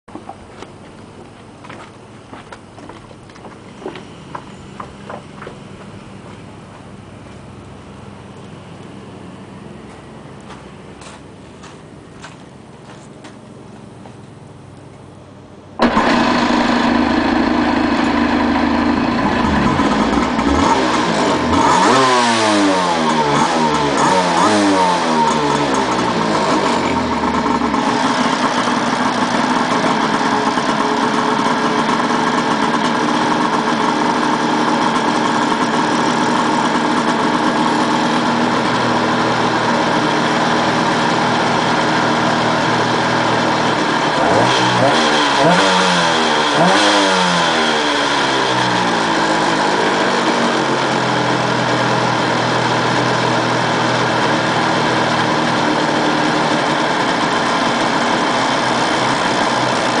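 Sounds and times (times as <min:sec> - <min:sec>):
jet ski engine revving and idling: 0:15.8 - 1:00.0.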